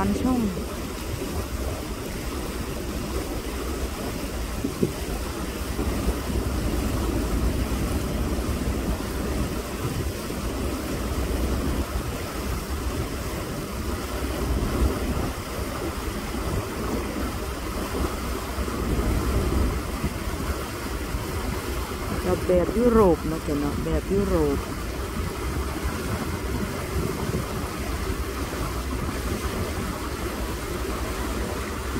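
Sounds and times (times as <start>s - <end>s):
boat engine drone: 0.0s - 31.9s
water rushing: 0.0s - 31.9s.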